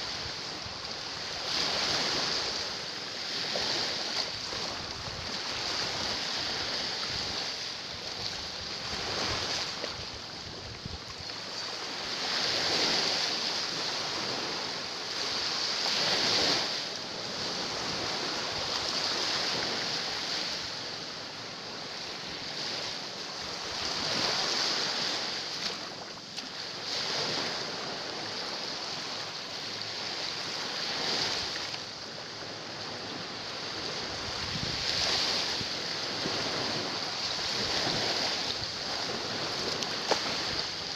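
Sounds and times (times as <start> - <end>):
waves splashing against rocks: 34.0 - 40.9.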